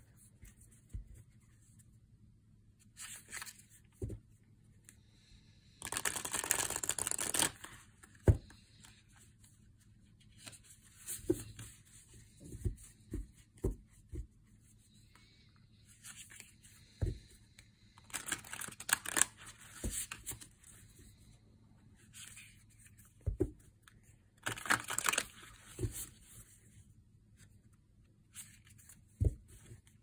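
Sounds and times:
cards shuffling: 3.0 - 4.2, 5.8 - 9.0, 18.0 - 20.5, 24.4 - 26.0
cards sliding: 5.8 - 8.2.

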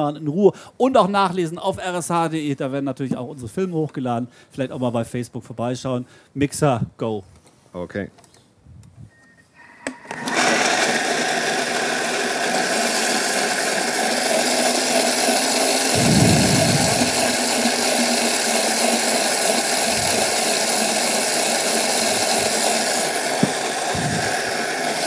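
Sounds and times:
food processor running: 9.6 - 25.0.

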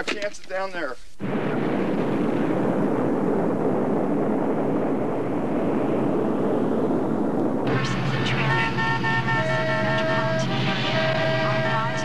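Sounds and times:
rocket motors roaring: 7.2 - 12.0.

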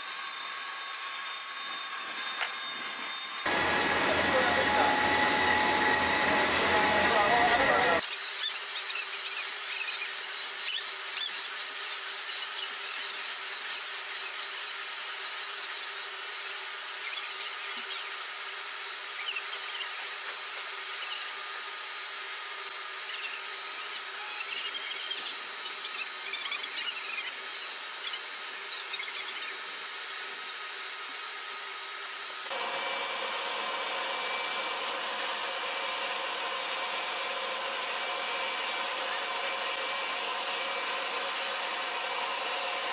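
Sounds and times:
turbine engine whine and hiss: 3.3 - 8.0, 32.5 - 42.9.

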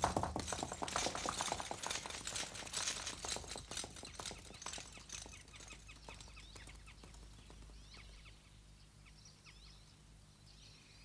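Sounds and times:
galloping horse hoofbeats: 0.0 - 8.2.

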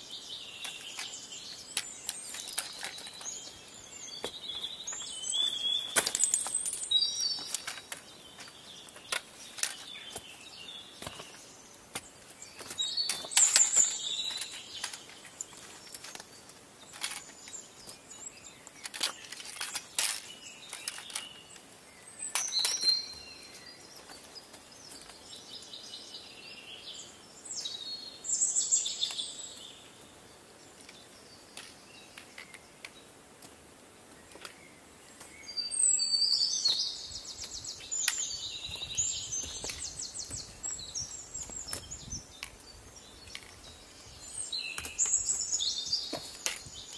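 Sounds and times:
songbirds singing: 0.0 - 46.9
trekking pole clicking on rock: 0.6 - 3.5, 11.0 - 17.9.

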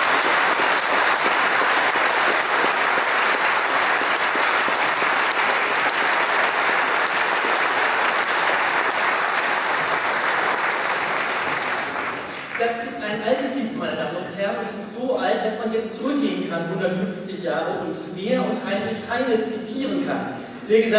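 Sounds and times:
audience applauding: 0.0 - 12.7.

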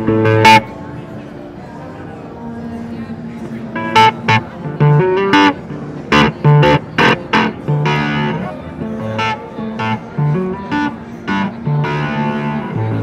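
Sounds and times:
fuzz electric guitar chords: 0.0 - 0.7, 3.8 - 13.0.

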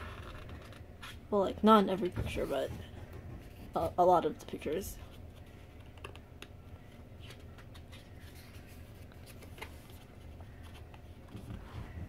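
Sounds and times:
photo book pages turning: 0.0 - 1.2, 5.0 - 11.8
low steady hum: 0.0 - 12.0.

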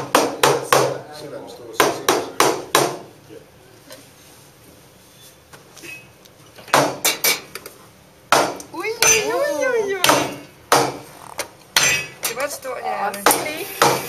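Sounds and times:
sharp knocks of espresso equipment: 6.7 - 7.4, 10.0 - 11.0, 13.2 - 14.0.

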